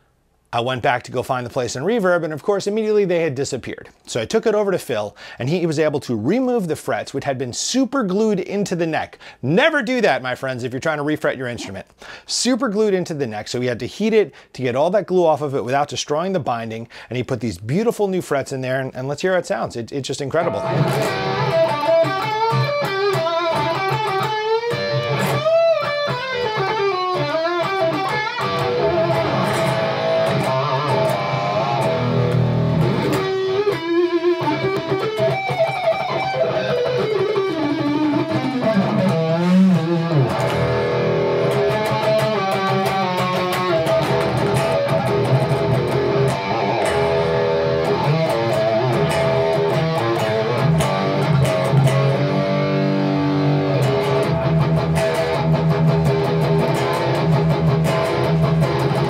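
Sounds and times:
electric guitar playing: 20.4s - 59.0s.

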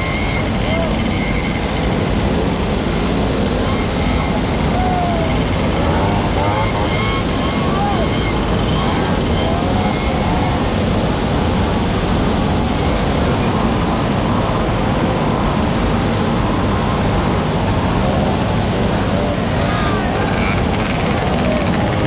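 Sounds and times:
moped engines idling and revving: 0.0s - 22.0s.

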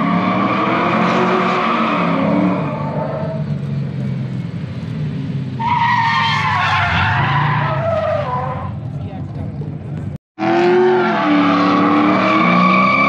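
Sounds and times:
tyre screech: 5.6s - 8.9s, 10.4s - 13.0s.

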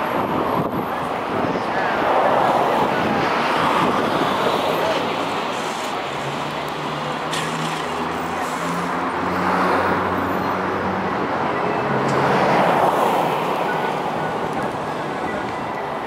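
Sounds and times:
street traffic hum: 0.0s - 16.0s.

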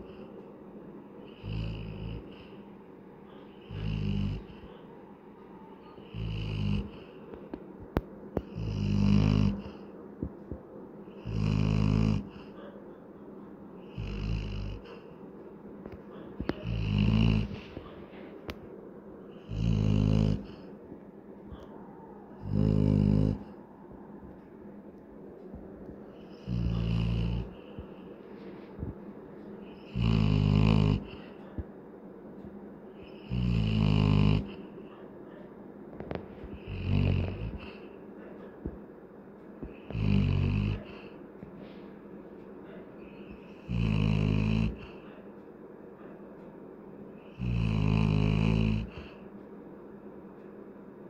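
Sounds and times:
dog snoring: 1.3s - 2.6s, 3.3s - 4.8s, 5.8s - 7.2s, 8.4s - 9.9s, 11.1s - 12.8s, 13.8s - 15.1s, 15.9s - 18.0s, 19.3s - 20.7s, 22.4s - 23.6s, 26.2s - 28.0s, 29.6s - 31.6s, 33.0s - 35.0s, 36.0s - 38.3s, 39.6s - 41.2s, 43.0s - 45.2s, 47.2s - 49.2s
dog breathing: 5.8s - 7.5s, 15.9s - 18.5s, 19.2s - 20.8s, 21.5s - 23.8s, 25.5s - 31.8s, 33.0s - 38.8s, 39.6s - 45.4s, 47.2s - 49.3s.

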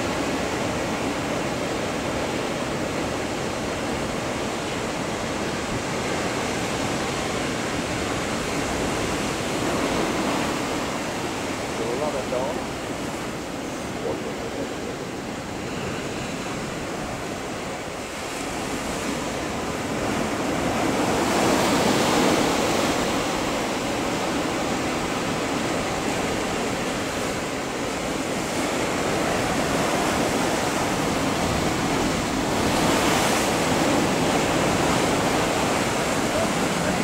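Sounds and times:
ocean surf breaking: 0.0s - 37.0s.

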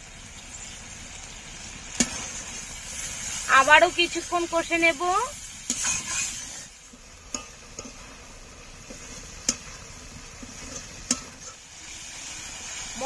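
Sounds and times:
paste sizzling in oil: 0.0s - 13.0s
spatula tapping pan: 6.9s - 8.2s, 8.8s - 11.6s.

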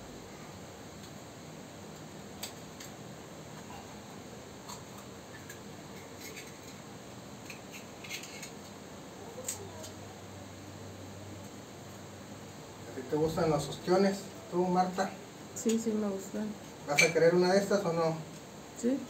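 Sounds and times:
knife scraping oyster shell: 7.5s - 8.6s.

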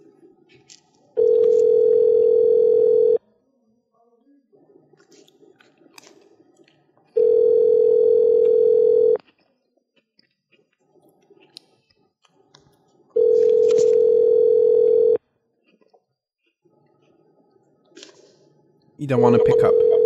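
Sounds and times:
telephone ringback tone: 1.2s - 3.2s, 7.2s - 9.2s, 13.2s - 15.2s, 19.3s - 20.0s.

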